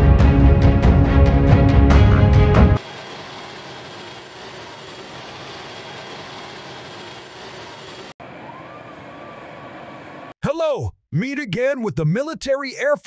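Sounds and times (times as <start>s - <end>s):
jet engines running: 2.8s - 10.4s.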